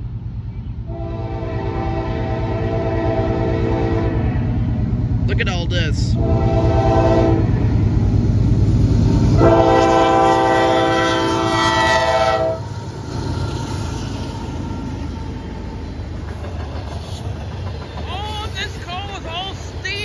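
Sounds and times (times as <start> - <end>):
diesel engine low rumble: 0.0 - 20.0
freight cars rolling past: 0.0 - 20.0
locomotive air horn: 0.9 - 4.3, 6.2 - 7.5, 9.4 - 12.7.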